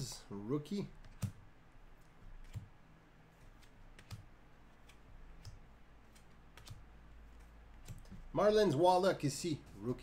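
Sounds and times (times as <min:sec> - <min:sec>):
low steady hum: 0:00.0 - 0:10.0
cards flipping clicks: 0:03.5 - 0:08.2.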